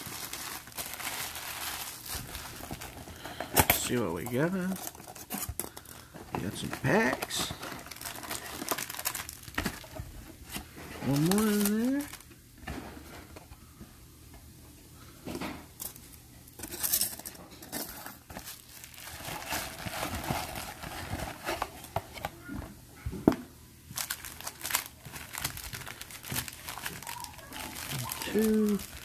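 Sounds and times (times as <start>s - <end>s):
foil packs crinkling and rustling: 0.0s - 12.3s, 17.8s - 22.3s, 23.9s - 29.0s.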